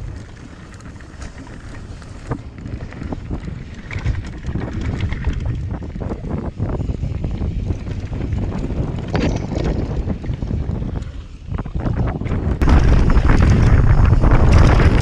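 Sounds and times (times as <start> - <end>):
bike rattling: 0.0 - 15.0
wind buffeting microphone: 0.0 - 15.0
tyres rolling on gravel: 12.6 - 15.0.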